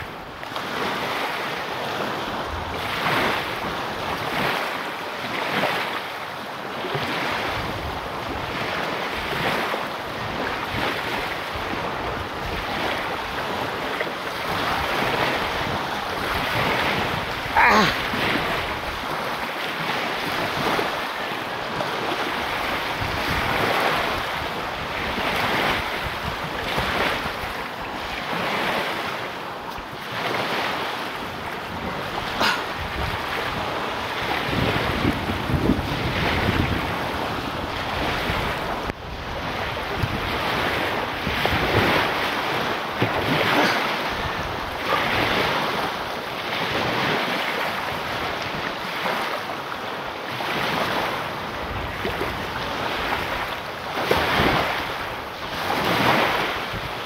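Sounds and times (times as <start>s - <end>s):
waves breaking on shore: 0.0s - 57.0s
wind buffeting microphone: 6.8s - 49.2s.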